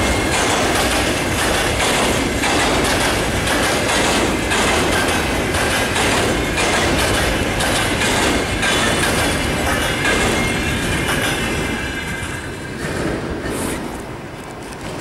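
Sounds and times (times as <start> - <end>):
train rumble: 0.0 - 15.0
train wheels clacking on rails: 0.0 - 15.0.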